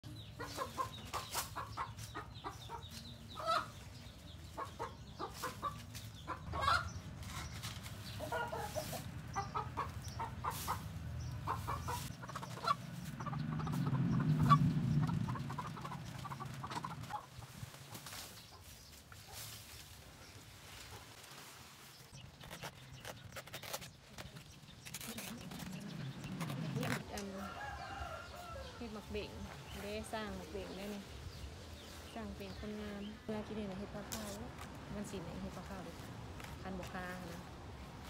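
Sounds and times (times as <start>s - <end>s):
chickens clucking: 0.0s - 21.4s
low rumble: 10.8s - 17.3s.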